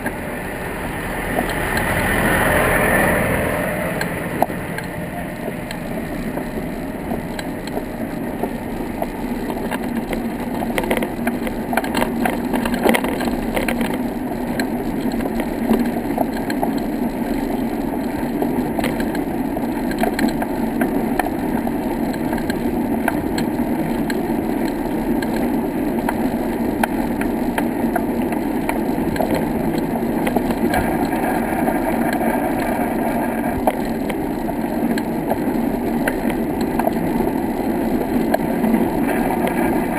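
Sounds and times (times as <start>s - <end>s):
wheels rolling on brick paving: 0.0s - 39.9s
sharp clicks and rattles: 1.1s - 39.9s.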